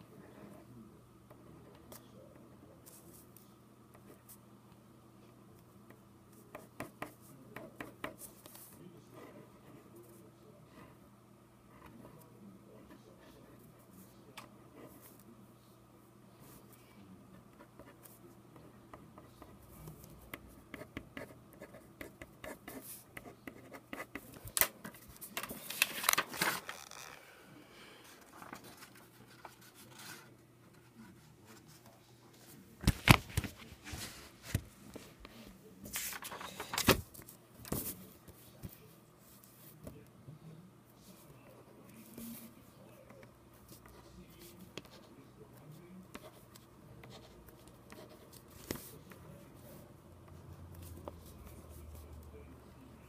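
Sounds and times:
pencil scratching on paper: 19.1 - 24.3, 28.6 - 31.8, 46.1 - 48.9
paper rustling: 24.4 - 27.2, 32.8 - 38.7.

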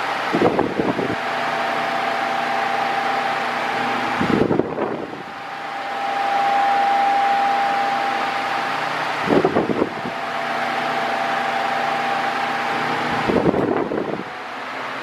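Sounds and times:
electric fan air rush: 0.0 - 15.0
thin motor whine: 0.0 - 15.0
wind buffeting microphone: 0.2 - 1.4, 4.0 - 5.4, 9.2 - 14.4.

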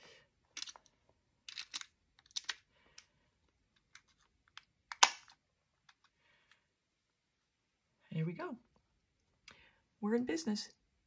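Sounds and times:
plastic snap: 4.5 - 5.4.

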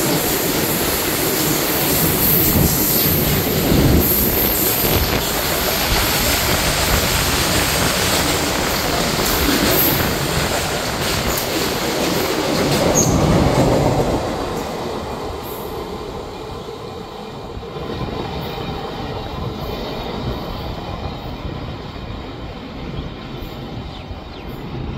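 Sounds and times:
freight train rumble and rattle: 0.0 - 24.9.

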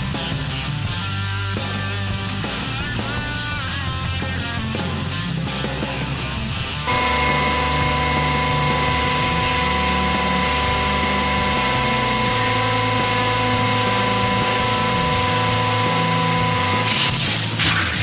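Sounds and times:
hydraulic press pump humming: 6.8 - 18.0.

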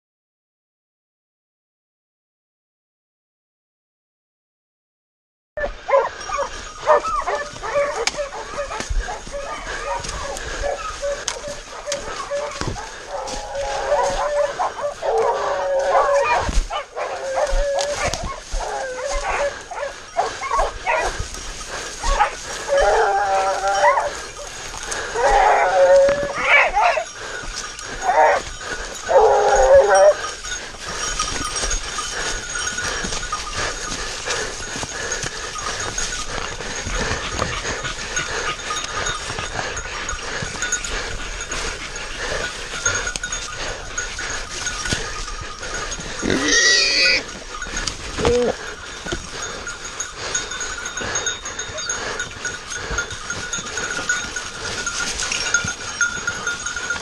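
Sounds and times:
dog baying: 5.6 - 57.0
rustling through dry leaves: 6.0 - 57.0
high bell-like ringing: 21.3 - 57.0.

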